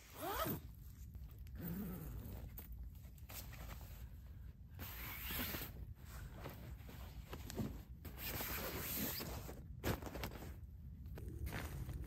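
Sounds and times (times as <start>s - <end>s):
gear rustling and scuffing: 2.5s - 12.0s.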